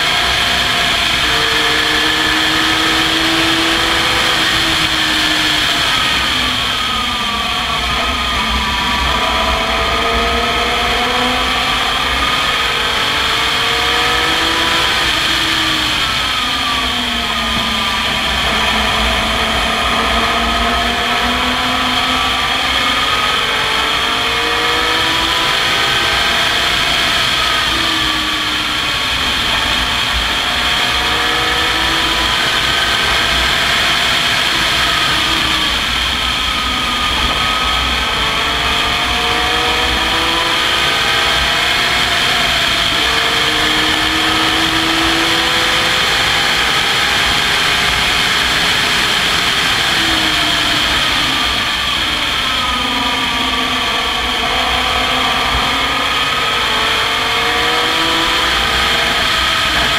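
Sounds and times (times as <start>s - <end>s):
race car engine revving: 0.0s - 59.9s
rush of wind: 0.0s - 59.9s.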